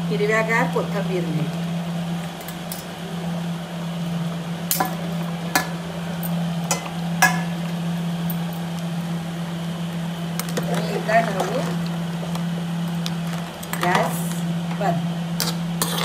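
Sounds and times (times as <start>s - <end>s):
steady low hum: 0.0s - 16.0s
metal ladle clinking on pot: 6.7s - 7.5s.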